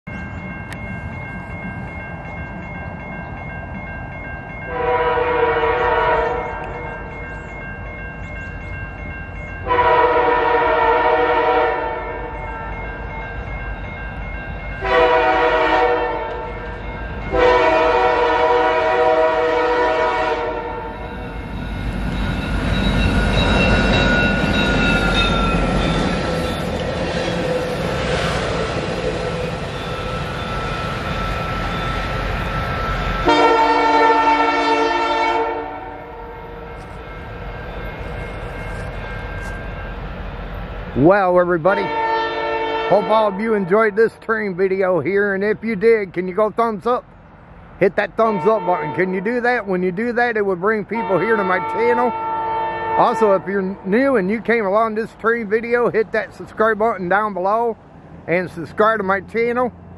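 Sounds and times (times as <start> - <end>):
crossing signal bell ringing: 0.1 - 46.9
train wheels rumbling on rail: 0.1 - 59.9
locomotive air horn: 4.7 - 6.7, 9.6 - 12.3, 14.8 - 16.6, 17.3 - 21.0, 33.2 - 36.4, 41.8 - 43.7, 48.3 - 49.0, 51.0 - 53.4.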